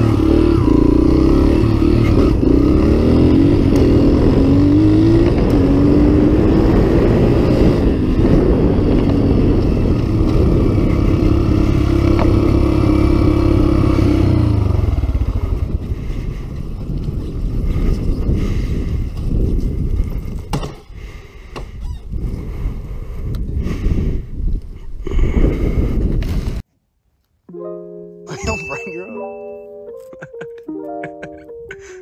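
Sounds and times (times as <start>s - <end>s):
small vehicle engine running: 0.0s - 18.9s.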